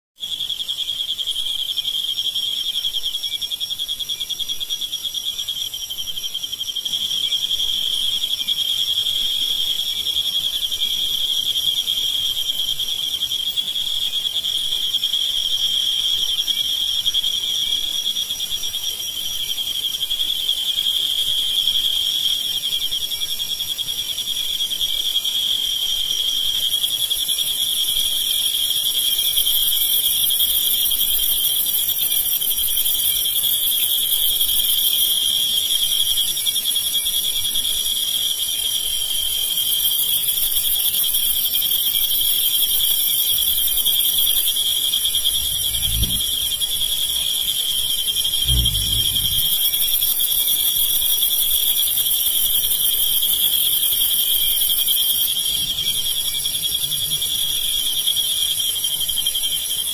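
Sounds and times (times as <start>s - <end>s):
crickets pulsing trill: 0.2s - 59.9s
fainter higher cricket trill: 26.6s - 56.4s.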